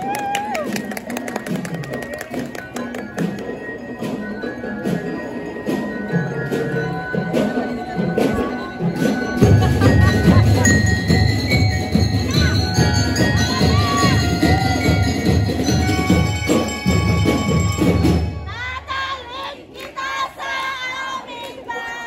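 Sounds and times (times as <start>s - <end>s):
drum line playing: 0.0s - 19.2s
bell lyres ringing melody: 1.2s - 18.8s.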